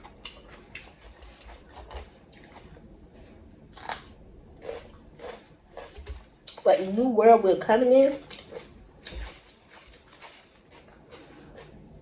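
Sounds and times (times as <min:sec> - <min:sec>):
crunching raw pepper: 0:03.7 - 0:06.6, 0:08.1 - 0:12.0.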